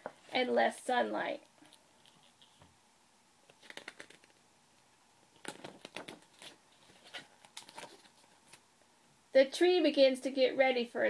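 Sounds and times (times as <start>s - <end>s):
book page rustling: 3.5s - 4.4s, 5.3s - 8.6s.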